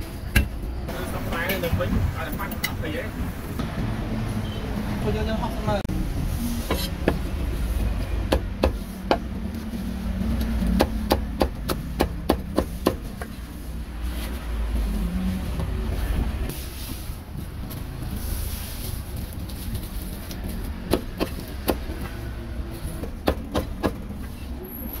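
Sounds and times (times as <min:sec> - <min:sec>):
low traffic rumble: 0:00.0 - 0:25.0
cleaver chopping on wooden block: 0:08.2 - 0:09.2, 0:10.7 - 0:13.3, 0:23.0 - 0:24.0.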